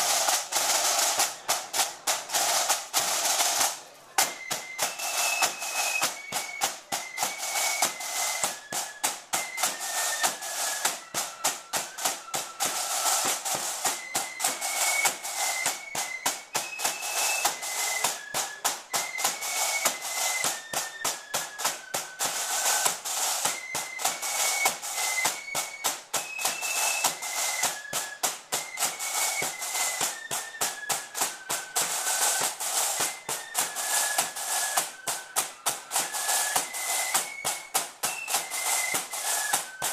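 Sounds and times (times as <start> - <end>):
flutes playing melody: 0.0 - 39.9
snare drums beating: 0.0 - 39.9.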